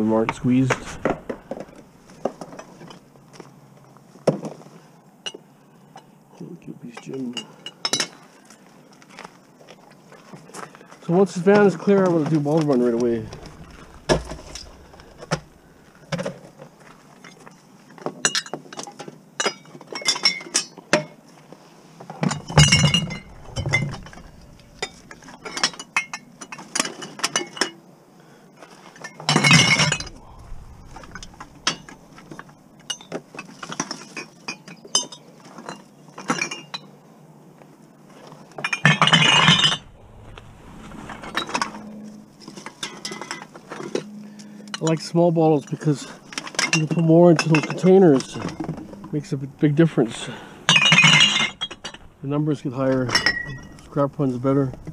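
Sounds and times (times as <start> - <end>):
glass bottles clinking: 22.2 - 26.6, 38.6 - 39.8, 46.4 - 49.0, 50.7 - 52.1, 53.0 - 53.9
bottles clattering into bin: 50.7 - 52.1.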